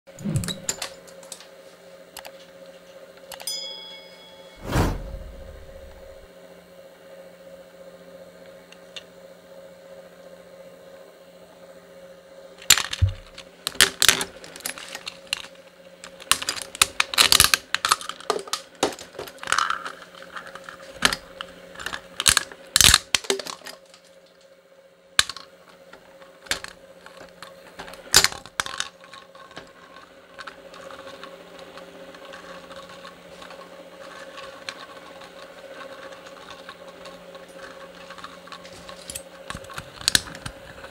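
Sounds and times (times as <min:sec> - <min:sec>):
plastic cracking and snapping: 0:16.1 - 0:19.8, 0:39.5 - 0:40.9.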